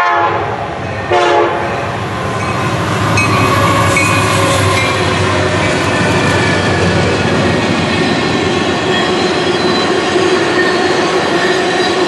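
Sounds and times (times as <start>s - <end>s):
train wheels rumbling on rail: 0.0s - 12.0s
wheel squeal: 3.2s - 12.0s.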